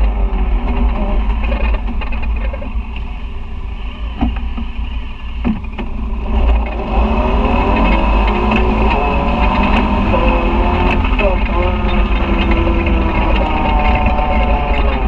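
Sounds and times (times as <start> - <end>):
knocks and rattles over bumps: 0.0 - 15.0
utility vehicle engine: 0.0 - 15.0.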